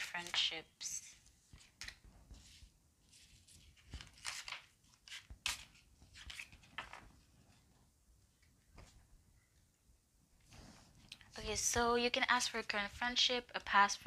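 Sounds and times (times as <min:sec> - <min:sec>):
cards shuffling: 0:01.5 - 0:07.3.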